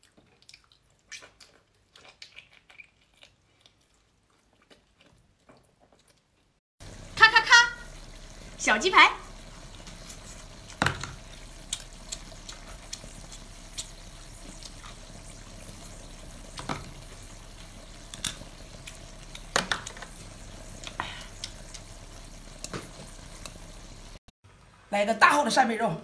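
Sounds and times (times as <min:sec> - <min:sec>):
wet eating smacks and slurps: 0:00.0 - 0:06.3.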